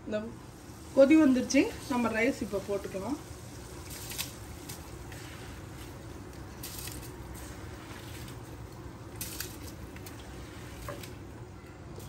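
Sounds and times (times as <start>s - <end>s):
boiling water bubbling: 0.4s - 12.0s
rice splashing into water: 3.6s - 11.2s.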